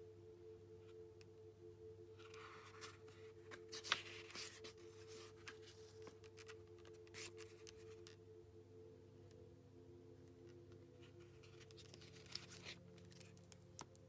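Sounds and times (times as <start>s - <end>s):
paper page rustling: 2.2s - 8.2s, 11.0s - 14.0s.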